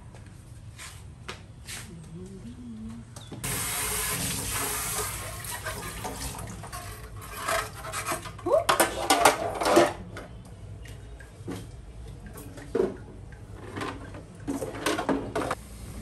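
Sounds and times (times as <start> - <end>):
tap water running into sink: 3.4 - 7.0.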